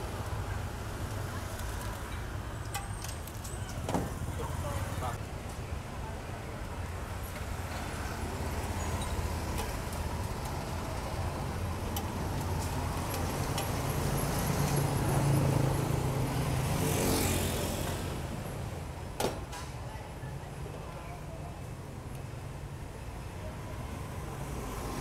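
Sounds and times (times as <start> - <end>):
traffic hum: 0.0 - 25.0
motorbike passing close: 12.8 - 18.4.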